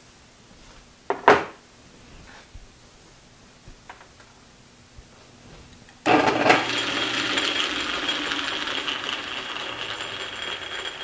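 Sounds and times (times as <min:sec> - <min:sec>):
metal lathe whirring and rattling: 0:06.1 - 0:11.0.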